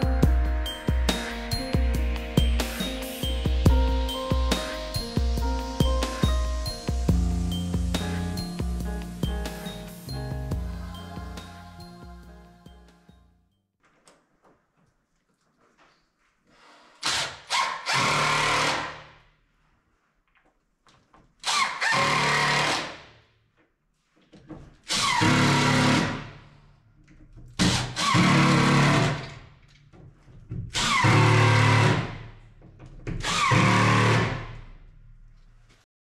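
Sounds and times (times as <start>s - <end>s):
cordless drill driving screws: 17.0s - 19.0s, 21.4s - 23.0s, 24.9s - 26.3s, 27.6s - 29.4s, 30.8s - 32.2s, 33.2s - 34.6s.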